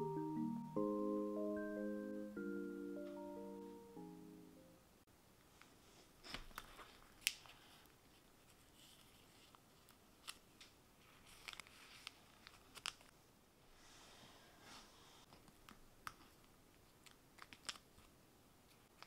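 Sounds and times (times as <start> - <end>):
plastic sleeves rustling: 5.6 - 13.1, 15.3 - 19.0
album cover clicks and taps: 17.0 - 17.9.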